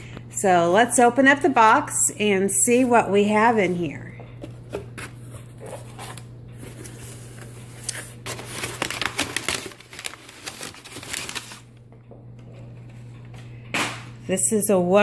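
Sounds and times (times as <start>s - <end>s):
packing paper crinkling: 5.1s - 11.8s.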